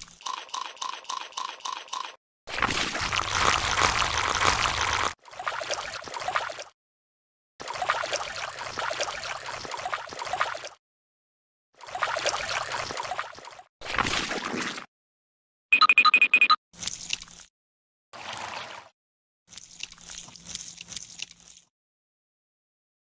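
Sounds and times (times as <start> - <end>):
water splashing and gurgling: 2.5 - 6.8, 7.6 - 10.8, 11.8 - 14.9.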